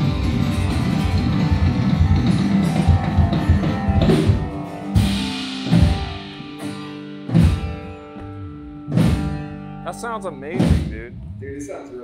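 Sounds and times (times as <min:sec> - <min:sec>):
drum and cymbal hits: 0:00.0 - 0:08.0, 0:08.9 - 0:09.5, 0:10.5 - 0:11.8
live band playing: 0:00.0 - 0:12.0.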